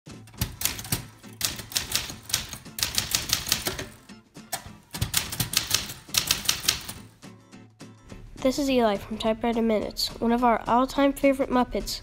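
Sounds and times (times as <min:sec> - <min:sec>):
manual typewriter typing: 0:00.3 - 0:04.0, 0:04.6 - 0:07.1.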